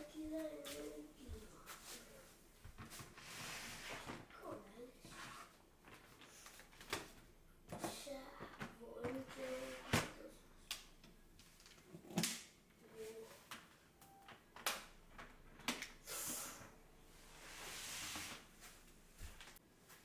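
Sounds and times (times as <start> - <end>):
bin sliding across matting: 3.2 - 4.2, 17.3 - 18.5.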